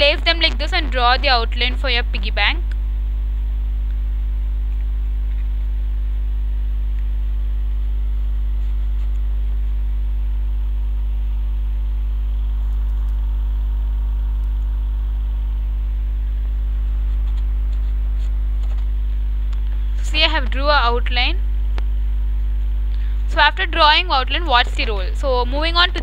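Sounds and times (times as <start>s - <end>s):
electrical mains hum: 0.0s - 26.0s.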